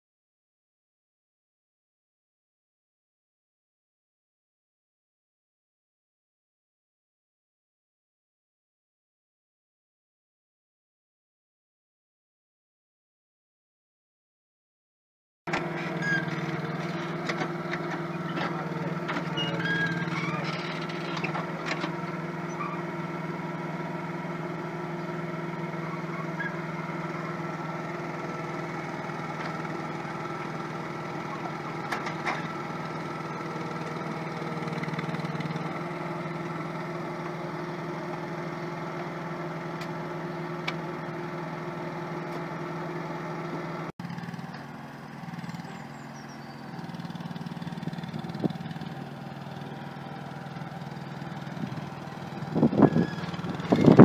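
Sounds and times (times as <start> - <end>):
excavator engine droning: 15.5 - 54.0.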